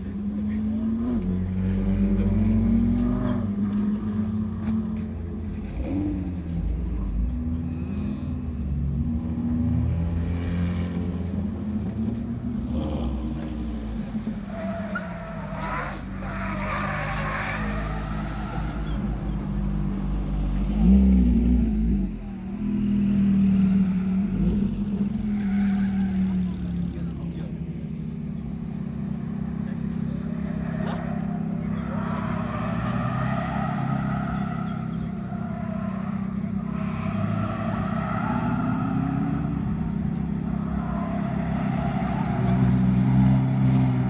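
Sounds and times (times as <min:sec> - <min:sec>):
sports car engines revving: 0:00.0 - 0:44.0.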